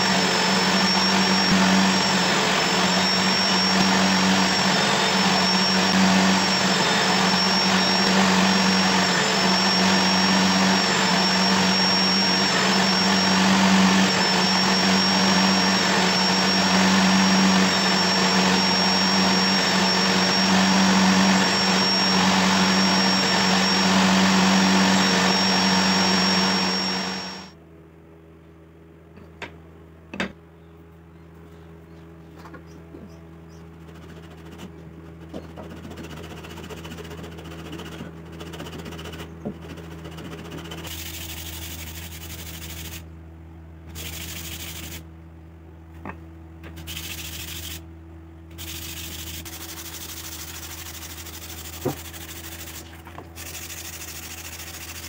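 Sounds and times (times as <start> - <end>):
table saw whining: 0.0 - 27.6, 48.6 - 55.0
sandpaper rubbing on wood: 33.7 - 43.1, 43.9 - 45.0, 46.8 - 47.8, 48.6 - 55.0.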